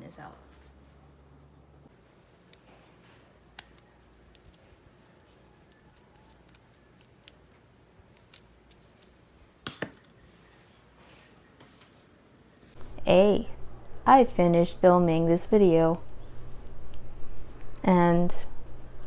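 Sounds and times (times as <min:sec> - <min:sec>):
hands handling plastic candle clicks: 0:03.5 - 0:10.2.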